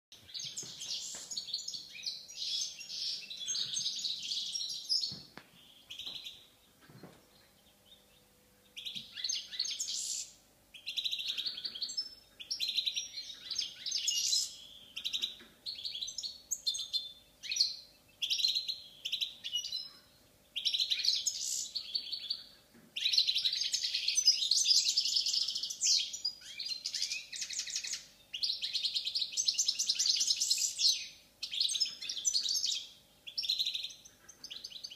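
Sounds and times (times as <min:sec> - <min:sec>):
goldfinch twittering song: 0:00.2 - 0:22.4.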